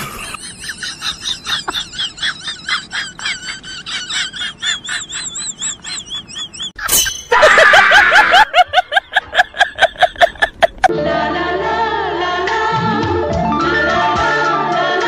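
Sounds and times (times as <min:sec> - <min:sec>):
comic laughing sound effect: 0:00.0 - 0:10.9.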